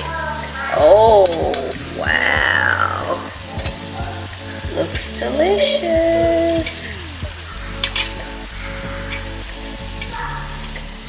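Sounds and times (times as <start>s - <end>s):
salmon sizzling: 0.0s - 11.0s.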